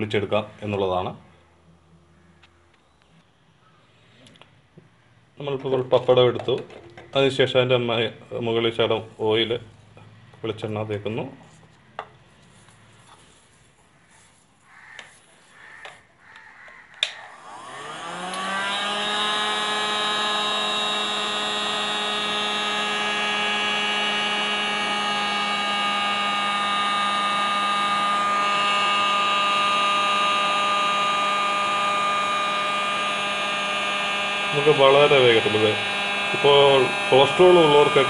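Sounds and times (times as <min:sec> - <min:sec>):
hot air gun fan whining: 0:14.9 - 0:38.0
hot air gun switch click: 0:16.9 - 0:17.2.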